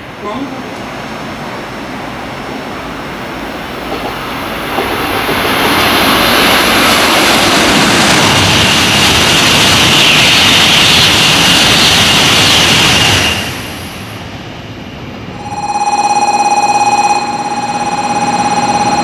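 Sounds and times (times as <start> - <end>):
train passing at speed: 0.0 - 19.0
high whine: 15.2 - 19.0.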